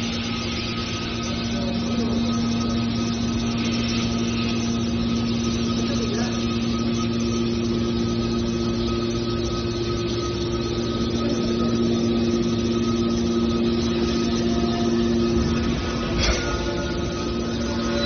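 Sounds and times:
hydraulic power unit humming: 0.0s - 18.0s
machine noise: 0.0s - 18.0s.

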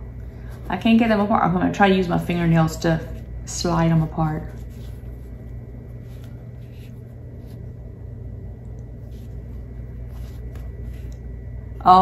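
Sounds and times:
low hum: 0.0s - 12.0s
fabric rustling and scratching: 2.8s - 7.8s, 9.0s - 11.2s.

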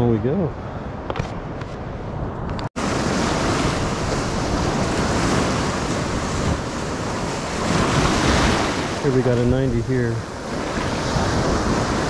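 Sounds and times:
wind buffeting microphone: 0.0s - 12.0s
waves breaking on sand: 2.8s - 12.0s.

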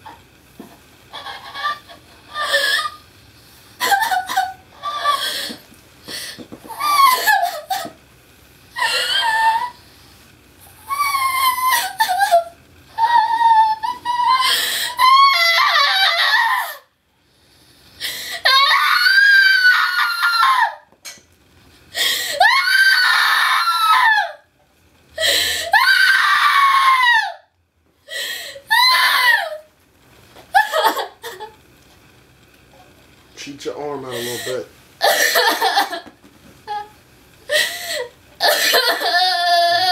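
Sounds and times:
woman sobbing: 1.1s - 3.0s, 3.8s - 5.6s, 6.8s - 7.9s, 8.8s - 9.8s, 30.6s - 31.6s, 34.2s - 36.9s, 37.5s - 39.9s
woman screaming: 18.5s - 20.8s, 22.4s - 24.4s, 25.7s - 27.4s, 28.7s - 29.6s.

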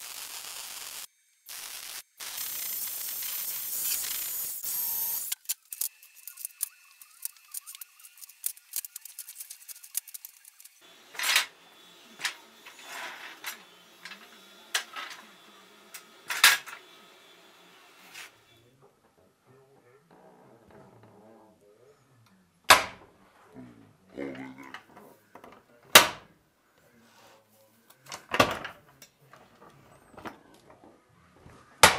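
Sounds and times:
welder crackling hiss: 0.0s - 18.6s.

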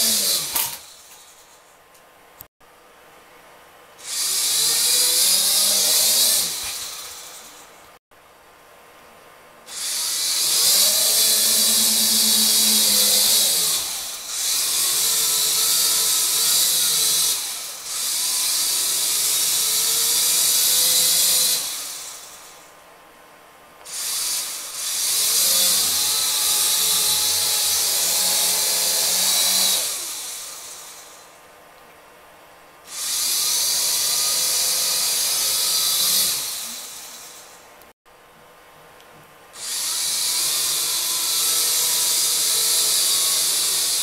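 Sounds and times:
mini quadcopter propellers whirring: 0.0s - 1.5s, 4.0s - 7.7s, 9.7s - 22.6s, 23.9s - 31.3s, 32.9s - 37.6s, 39.6s - 44.0s.

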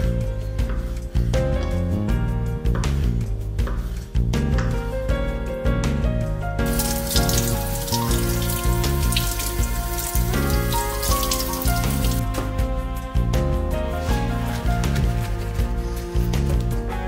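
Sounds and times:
music with steady beat: 0.0s - 17.0s
tap running water: 6.6s - 12.2s.

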